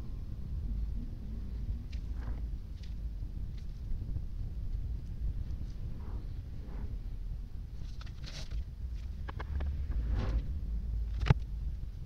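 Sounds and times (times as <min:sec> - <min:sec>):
steady low rumble: 0:00.0 - 0:12.0.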